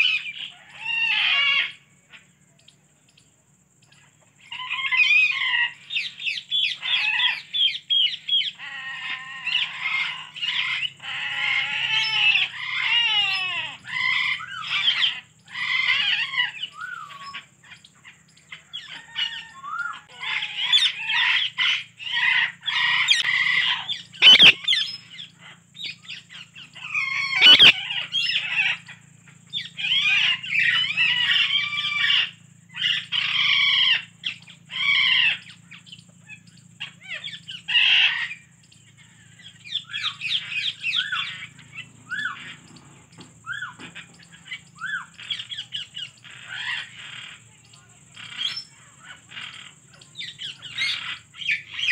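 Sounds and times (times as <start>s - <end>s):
parakeet chattering and squawking: 20.1s - 38.4s, 43.5s - 51.9s.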